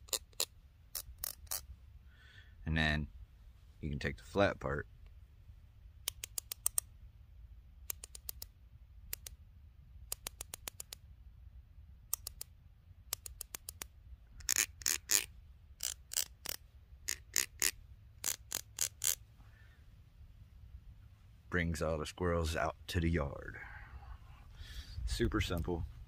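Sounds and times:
squirrel call clicks: 13.1s - 19.2s.

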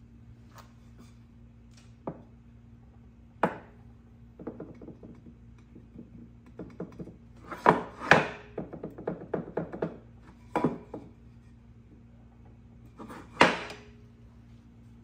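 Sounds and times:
wooden board knocking on metal: 4.4s - 11.1s.

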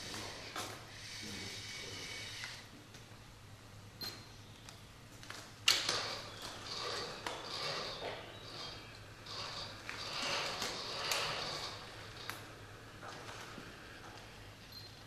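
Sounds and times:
robot arm motors whirring: 0.0s - 2.7s, 6.0s - 12.4s.

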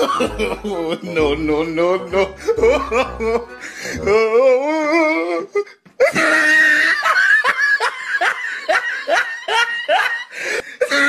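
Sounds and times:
high-pitched laughter: 2.4s - 4.3s, 6.0s - 11.0s.

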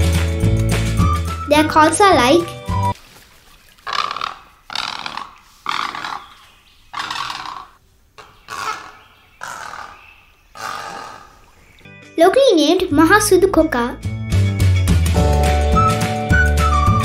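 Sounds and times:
egret rasping croaks: 3.8s - 6.3s, 7.0s - 10.0s, 10.6s - 11.4s.

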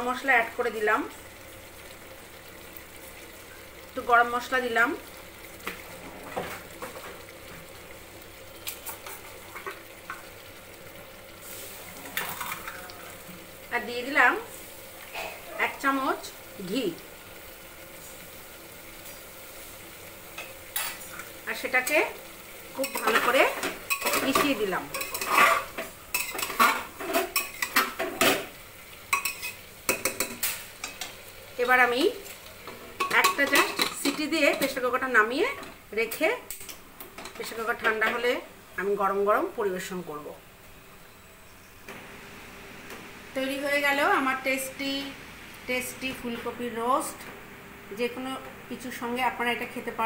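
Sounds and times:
curry simmering and sizzling: 0.0s - 50.0s
metal spoon scraping pot: 23.9s - 27.8s.

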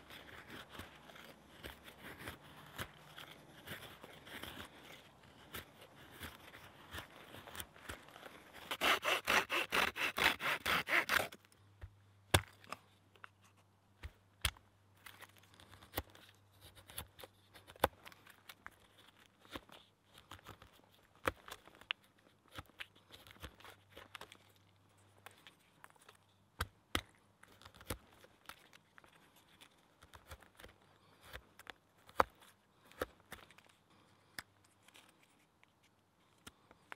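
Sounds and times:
knife scraping wood: 0.0s - 11.4s.

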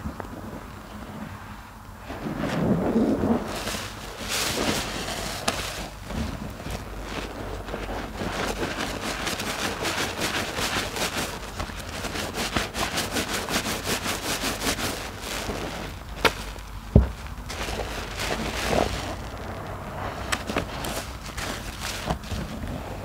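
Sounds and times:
sponge squishing lather: 2.2s - 23.0s
low thump: 16.9s - 17.2s.

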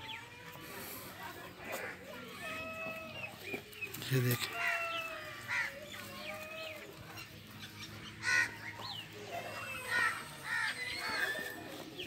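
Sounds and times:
birds chirping: 0.0s - 12.0s
crows cawing: 4.3s - 6.4s, 8.2s - 8.8s, 9.5s - 11.5s.

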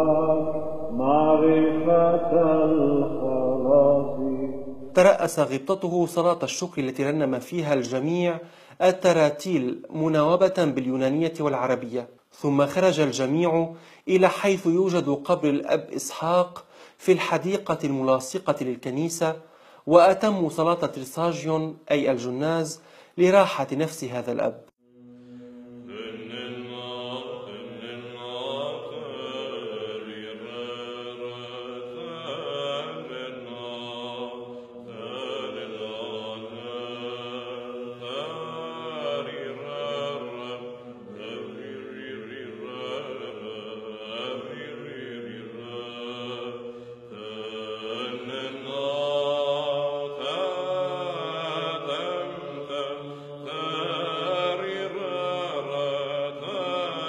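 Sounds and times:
low drone note: 0.0s - 5.3s
men chanting: 0.0s - 5.6s, 25.0s - 57.0s.

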